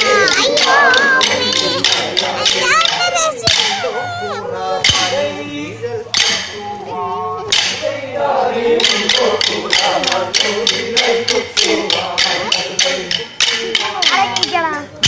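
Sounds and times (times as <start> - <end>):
wooden sticks clacking: 0.0 - 3.8, 6.1 - 6.6, 7.5 - 7.8, 8.8 - 14.6
group of voices singing: 0.0 - 15.0.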